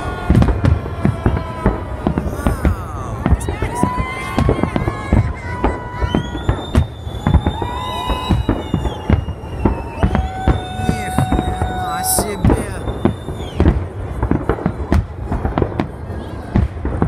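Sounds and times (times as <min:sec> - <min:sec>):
fireworks bangs and crackles: 0:00.0 - 0:17.0
fireworks high whistles: 0:03.2 - 0:14.7.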